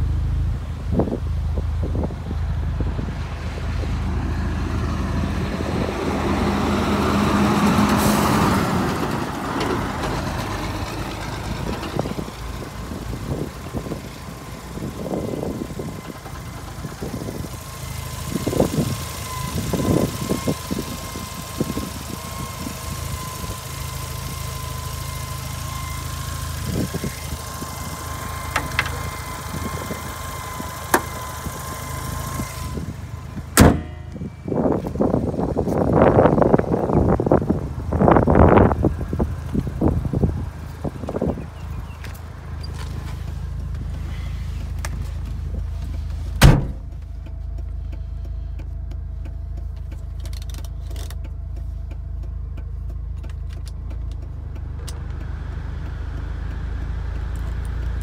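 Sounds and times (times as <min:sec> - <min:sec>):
rotary engine idling: 0:09.7 - 0:36.5.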